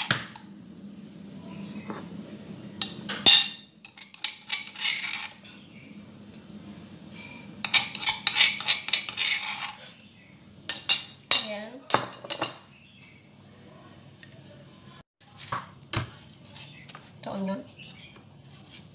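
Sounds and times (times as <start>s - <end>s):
metal spoon scraping stone mortar: 3.3s - 5.4s, 7.6s - 10.0s.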